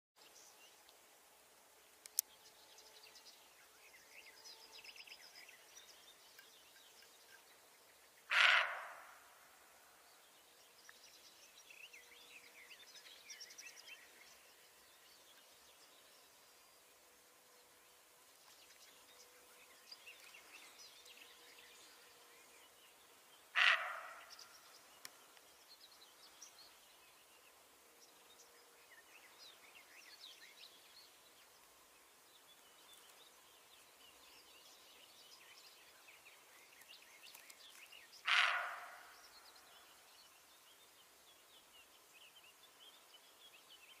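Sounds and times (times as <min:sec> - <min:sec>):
faint birdsong: 0:00.2 - 0:44.0
roe deer barking: 0:08.3 - 0:09.2, 0:23.6 - 0:24.3, 0:38.2 - 0:39.2.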